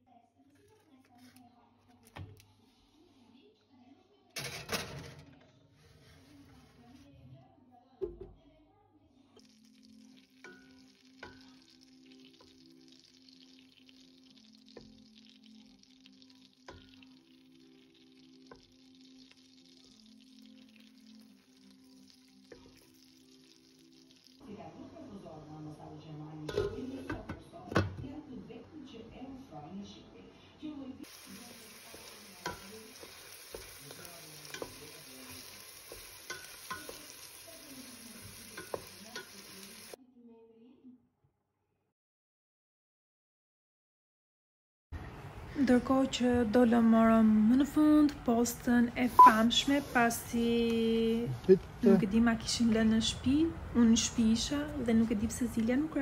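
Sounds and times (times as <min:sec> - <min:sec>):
soft background music: 0:00.0 - 0:41.1, 0:45.5 - 0:56.0
butter sizzling in a pot: 0:09.4 - 0:24.4, 0:31.0 - 0:40.0
spatula scraping and knocking pot: 0:32.4 - 0:37.1.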